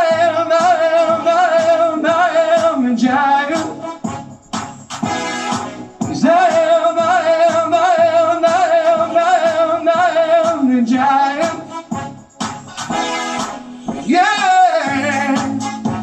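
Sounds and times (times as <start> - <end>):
man singing into microphone: 0.0 - 3.9, 6.1 - 11.8, 14.0 - 16.0
backing track with beat: 0.0 - 16.0.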